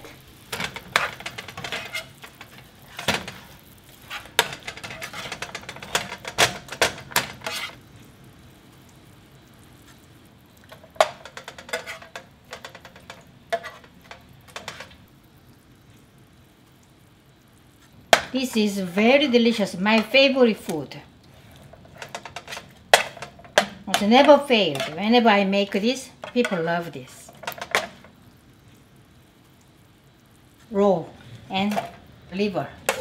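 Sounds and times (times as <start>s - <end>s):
light clatter of food turned: 0.0s - 7.9s, 10.6s - 15.1s, 21.4s - 25.2s
spatula scraping a frying pan: 0.0s - 7.9s, 10.7s - 15.0s, 21.6s - 25.2s.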